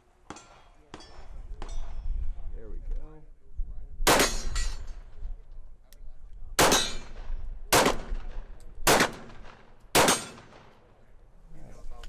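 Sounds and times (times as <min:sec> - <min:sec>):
pistol shots with echo: 0:04.0 - 0:04.8, 0:06.6 - 0:11.0.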